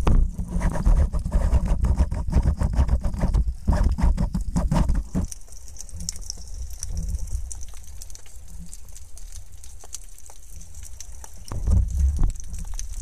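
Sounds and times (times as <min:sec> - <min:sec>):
low rumble of water: 0:00.0 - 0:13.0.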